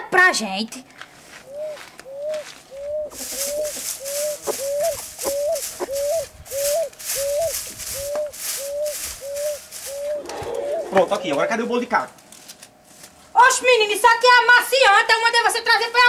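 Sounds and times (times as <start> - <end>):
broom sweeping dirt: 1.2 - 11.2, 12.3 - 13.3.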